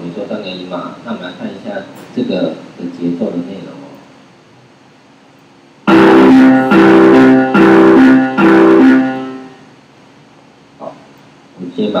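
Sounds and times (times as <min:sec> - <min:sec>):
synthesized broken chord notes: 0:05.9 - 0:09.7.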